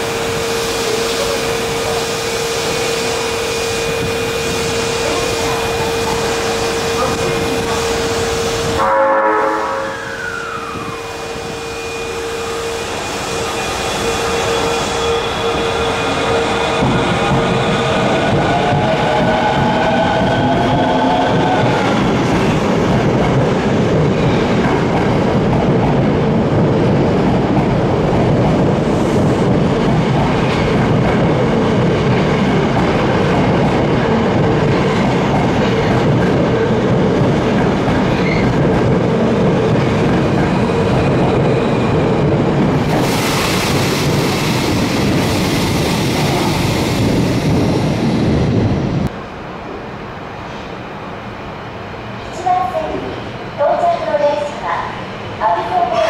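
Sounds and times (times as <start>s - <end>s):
subway train wheels clattering: 0.0s - 56.0s
hiss: 42.9s - 47.0s.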